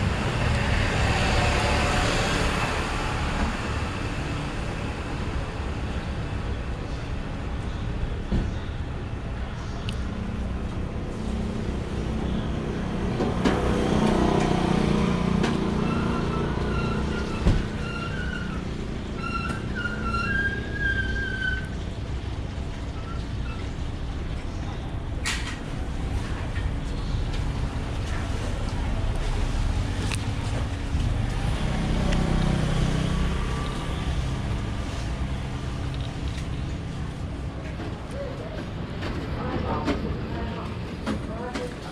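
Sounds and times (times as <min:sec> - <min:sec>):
vehicle engine passing: 0:00.0 - 0:05.1, 0:26.4 - 0:37.8
traffic rumble: 0:00.0 - 0:41.9.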